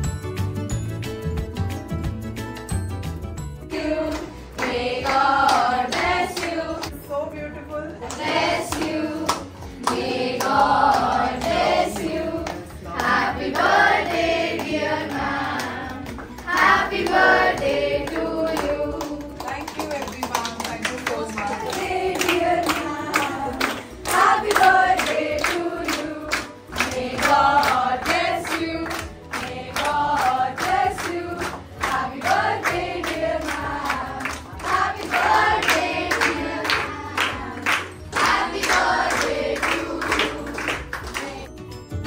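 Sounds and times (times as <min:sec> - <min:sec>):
clapping in time: 0:15.5 - 0:41.5.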